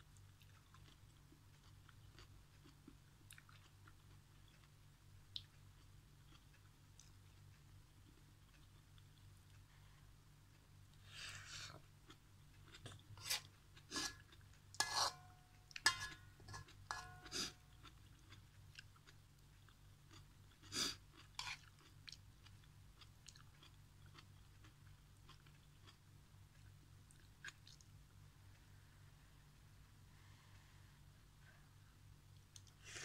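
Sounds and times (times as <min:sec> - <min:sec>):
person chewing noodles: 0:00.2 - 0:09.7, 0:10.5 - 0:14.9, 0:15.7 - 0:27.9
metal spoon scraping a wok: 0:14.8 - 0:15.2.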